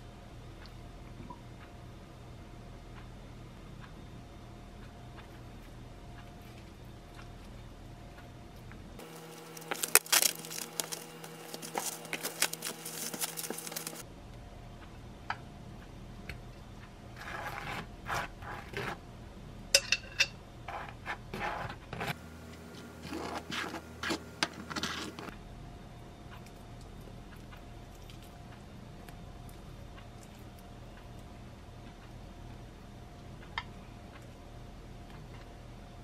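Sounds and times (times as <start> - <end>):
cling film crinkling: 9.0 - 14.0
knife scraping sauce on bread: 17.2 - 19.0, 20.7 - 22.2.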